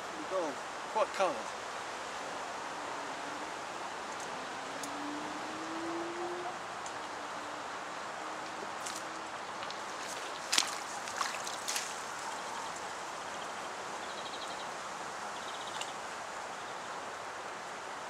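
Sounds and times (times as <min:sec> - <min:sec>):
outdoor hiss: 0:00.0 - 0:03.2.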